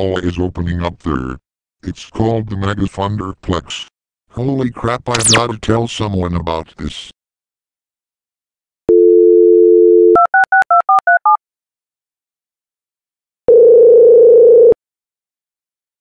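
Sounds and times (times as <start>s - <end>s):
telephone dial tone: 8.9s - 11.4s, 13.5s - 14.8s
telephone ringback tone: 8.9s - 11.4s, 13.5s - 14.8s.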